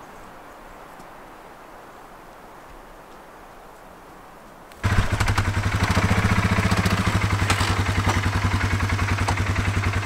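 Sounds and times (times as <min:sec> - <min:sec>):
atv engine idling: 0:04.8 - 0:10.0.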